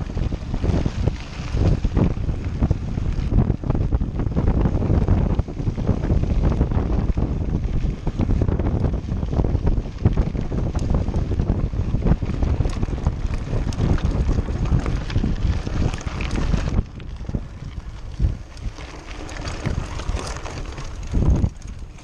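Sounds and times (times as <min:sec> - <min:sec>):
bike rattling: 0:00.0 - 0:22.0
wind buffeting microphone: 0:00.0 - 0:22.0
tyres crunching on gravel: 0:08.9 - 0:22.0.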